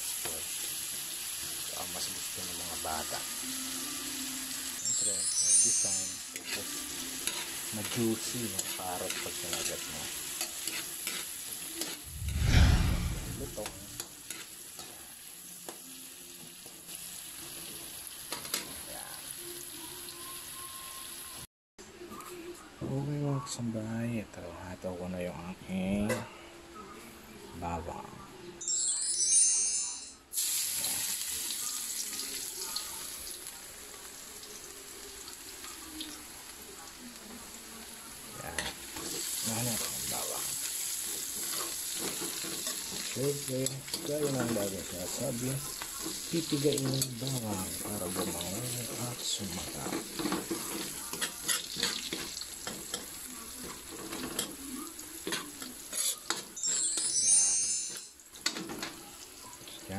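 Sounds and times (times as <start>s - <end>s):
small crackles of frying: 0.0s - 5.2s, 5.8s - 12.1s, 13.5s - 21.5s, 30.4s - 57.0s, 58.2s - 59.9s
garlic sizzling in hot oil: 0.0s - 12.1s, 13.4s - 21.4s, 30.3s - 57.0s, 58.2s - 59.9s
metal spoon scraping pan: 49.8s - 54.6s.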